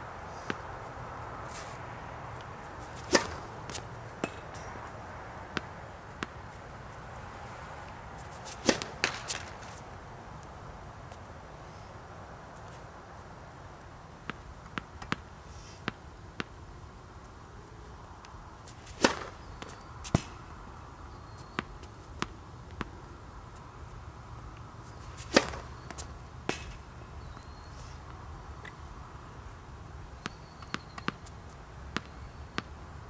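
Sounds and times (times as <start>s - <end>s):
racquet striking tennis ball: 2.4s - 6.4s, 8.3s - 9.8s, 18.7s - 20.5s, 25.1s - 26.9s
tennis ball bouncing on hard court: 2.8s - 4.7s, 5.5s - 6.4s, 8.4s - 9.7s, 18.8s - 20.4s, 25.1s - 26.8s, 30.2s - 31.3s, 31.9s - 32.7s.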